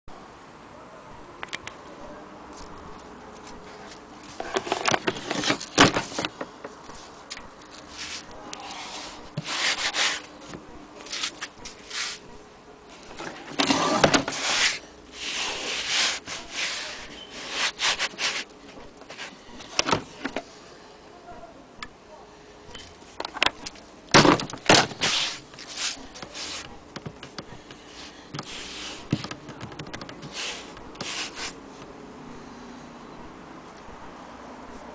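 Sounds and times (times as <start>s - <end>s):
hand rubbing a case covering: 3.5s - 10.4s, 13.0s - 20.4s, 24.4s - 31.9s.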